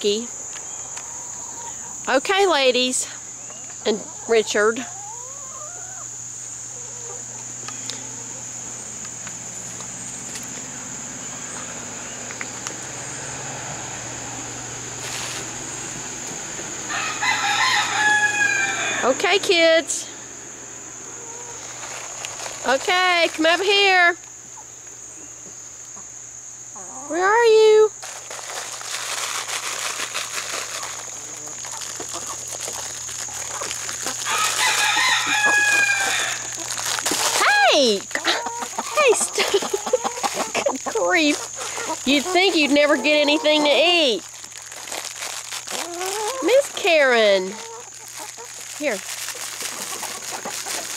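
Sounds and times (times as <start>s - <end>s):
high-pitched insect drone: 0.0s - 24.3s, 25.1s - 50.9s
chickens calling loudly: 0.1s - 50.9s
chicken drawn-out call: 4.9s - 8.6s, 16.7s - 19.2s, 21.0s - 22.2s, 30.6s - 37.4s, 38.1s - 43.8s, 45.7s - 46.6s, 47.2s - 48.7s, 49.3s - 50.9s.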